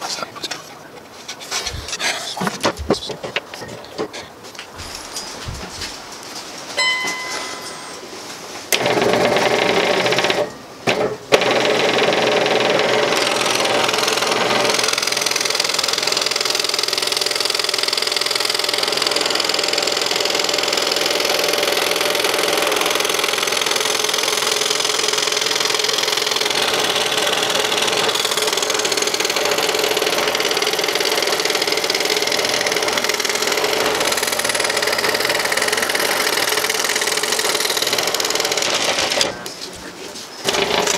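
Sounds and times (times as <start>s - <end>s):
scroll saw cutting wood: 11.4s - 39.5s, 40.4s - 40.9s.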